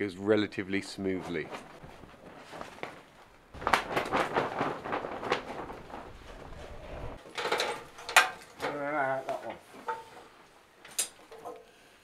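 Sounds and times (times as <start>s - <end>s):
roofing membrane flapping: 1.1s - 7.2s
wind on microphone: 6.1s - 7.2s.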